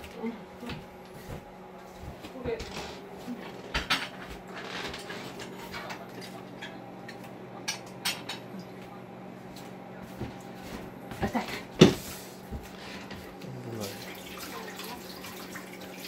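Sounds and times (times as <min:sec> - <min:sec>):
dishes clinking and knocking: 0:03.6 - 0:08.5.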